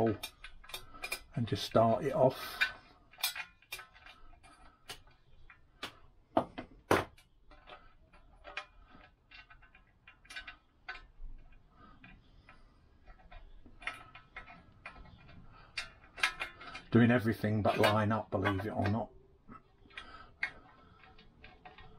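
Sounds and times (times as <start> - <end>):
screw clicking on metal cowling: 0.0 - 6.1, 7.1 - 21.9.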